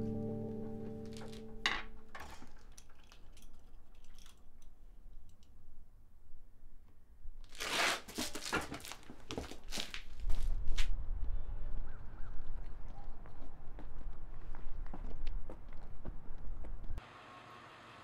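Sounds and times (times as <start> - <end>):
light clicks of small parts: 2.2 - 5.6
rough rustling and crinkling: 7.4 - 10.9.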